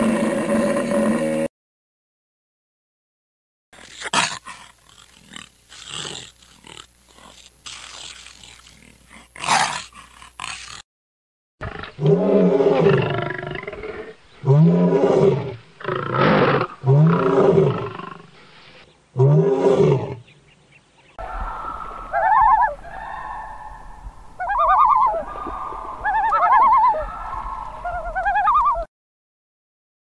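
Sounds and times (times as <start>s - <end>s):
lion roaring: 11.6s - 18.2s
loon wavering calls: 21.2s - 28.9s
low hum: 21.2s - 28.9s.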